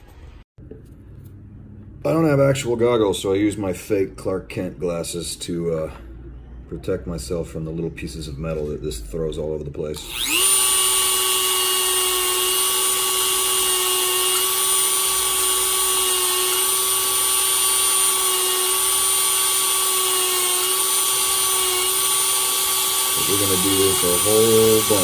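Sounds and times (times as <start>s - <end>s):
rotary tool high whine: 10.0s - 25.0s.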